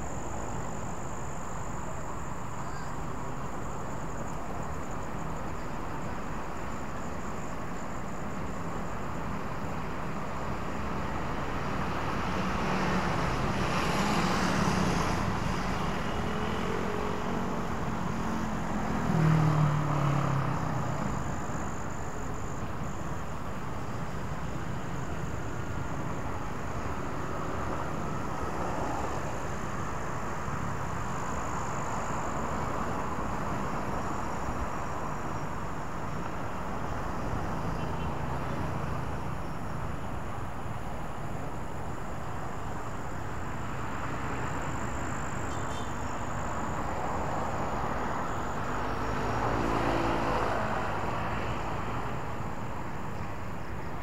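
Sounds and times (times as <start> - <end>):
cars passing: 10.6 - 54.0
loud engine passing close: 48.7 - 51.8.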